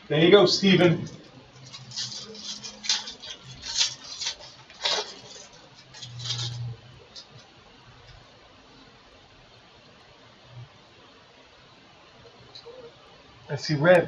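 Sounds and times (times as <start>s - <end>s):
foil wrapper crackling: 1.0s - 7.6s.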